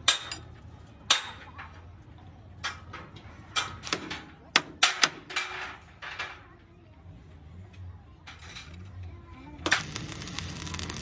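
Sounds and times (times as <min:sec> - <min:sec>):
metal tools clanking on steel: 0:00.0 - 0:01.8.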